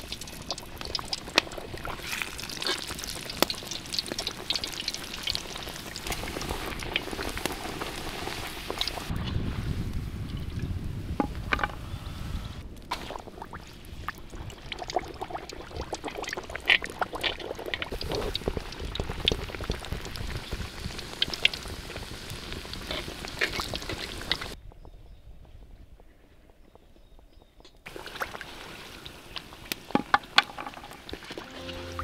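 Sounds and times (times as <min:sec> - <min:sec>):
liquid pouring and trickling: 0:00.0 - 0:09.1.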